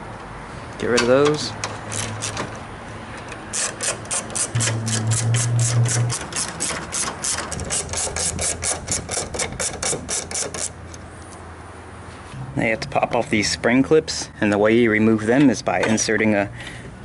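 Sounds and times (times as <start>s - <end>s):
hand ratchet clicking: 1.6s - 2.5s, 3.3s - 10.8s.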